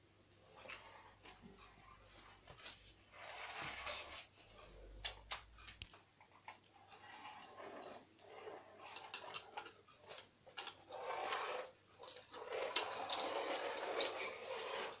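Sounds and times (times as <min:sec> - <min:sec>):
plastic bricks scraping on wooden floor: 0:02.1 - 0:04.3, 0:06.8 - 0:15.0.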